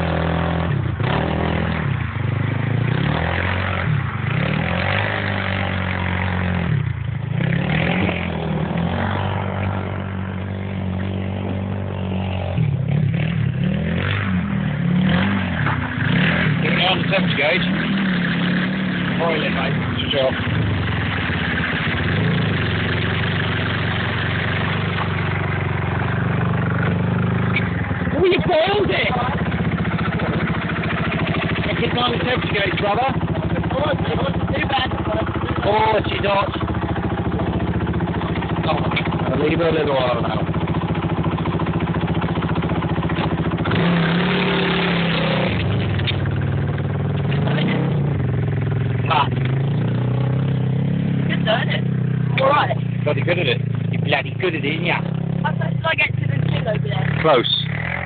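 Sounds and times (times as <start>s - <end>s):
petrol engine idling: 14.4s - 58.0s.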